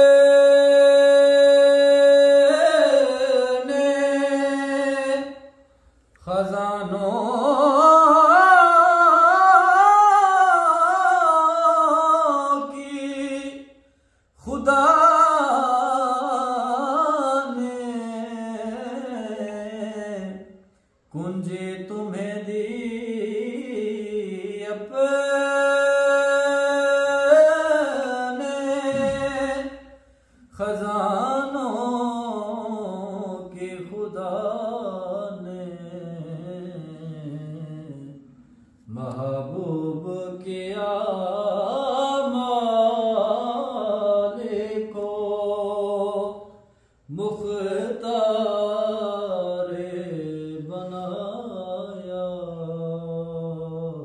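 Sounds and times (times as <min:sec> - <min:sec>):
man singing unaccompanied: 0:00.0 - 0:05.5, 0:06.2 - 0:13.7, 0:14.4 - 0:54.0.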